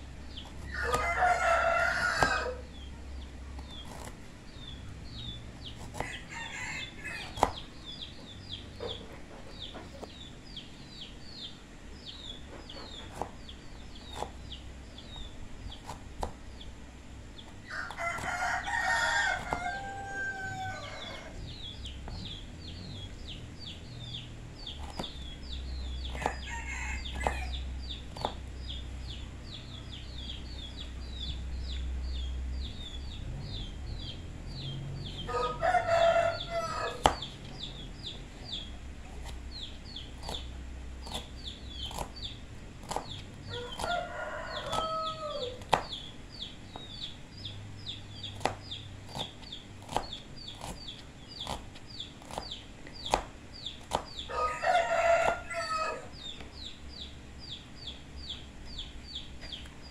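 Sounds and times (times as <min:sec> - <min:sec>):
small bird chirping rapidly: 0:00.0 - 0:59.9
rooster crowing: 0:00.6 - 0:02.7, 0:06.0 - 0:07.5, 0:17.7 - 0:21.5, 0:26.1 - 0:27.6, 0:35.1 - 0:37.2, 0:43.5 - 0:45.7, 0:54.3 - 0:56.2.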